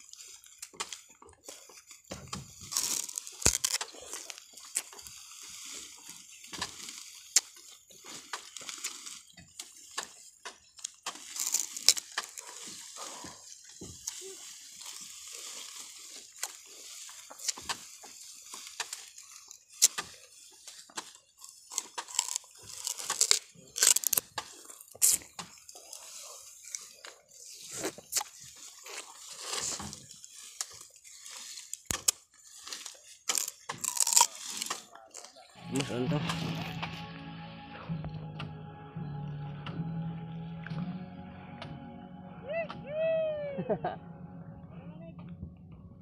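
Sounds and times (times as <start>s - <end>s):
dry cane stalks crackling and rustling: 0.0s - 37.0s
sharp snaps and knocks: 2.1s - 5.1s, 6.5s - 7.6s, 19.8s - 25.6s, 31.7s - 32.3s.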